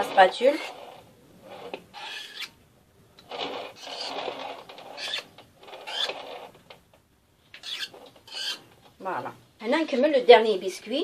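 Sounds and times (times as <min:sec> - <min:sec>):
metal spatula scraping cream: 0:00.0 - 0:02.6, 0:03.3 - 0:06.6, 0:07.6 - 0:08.7.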